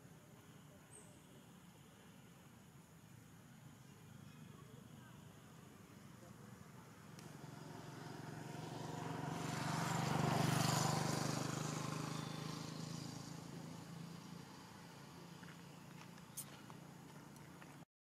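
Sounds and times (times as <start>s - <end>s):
vehicle passing by: 7.0s - 17.8s.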